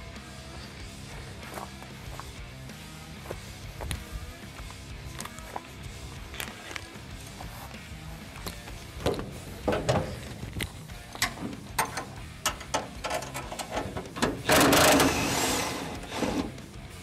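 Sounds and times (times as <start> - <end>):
metal clicks and clanks: 9.0 - 16.6
power driver spinning bolts: 9.0 - 16.7.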